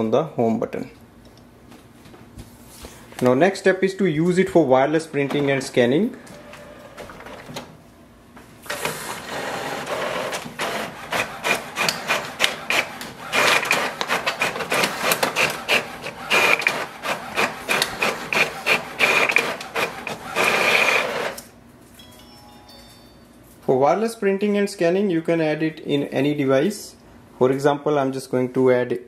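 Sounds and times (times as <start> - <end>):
inkjet printer printing: 5.2 - 7.7, 8.7 - 21.4.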